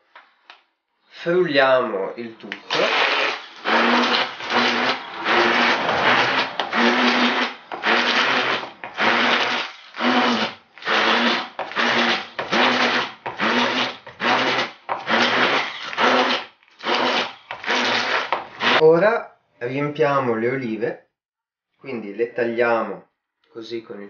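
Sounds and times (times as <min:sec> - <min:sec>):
immersion blender motor whine: 0:02.7 - 0:18.8.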